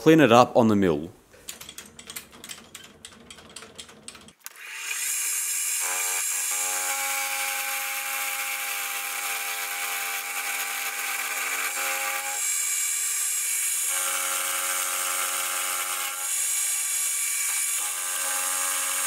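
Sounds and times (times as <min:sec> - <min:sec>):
multi-tone hum of cutter: 0:04.4 - 0:19.0.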